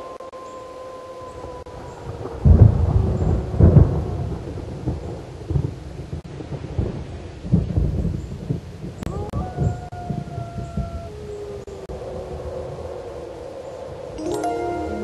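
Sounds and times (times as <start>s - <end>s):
wolf howling: 0.0s - 2.2s, 9.1s - 15.0s.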